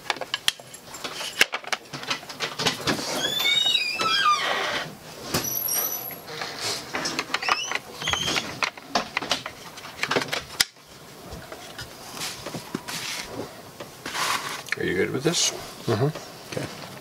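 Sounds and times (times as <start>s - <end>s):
short high squeaks: 3.2s - 6.6s.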